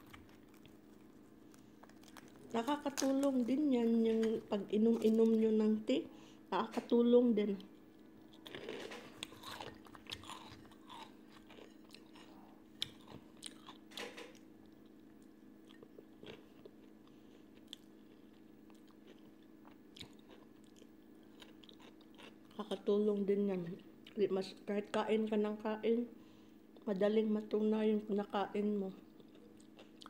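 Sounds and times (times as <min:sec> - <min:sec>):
person chewing crunchy food: 0:00.0 - 0:05.4, 0:07.6 - 0:22.6, 0:29.1 - 0:30.0.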